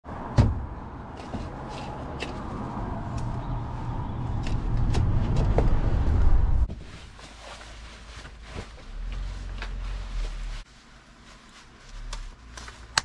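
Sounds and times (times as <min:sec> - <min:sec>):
vehicle rumble approaching: 0:00.0 - 0:13.0.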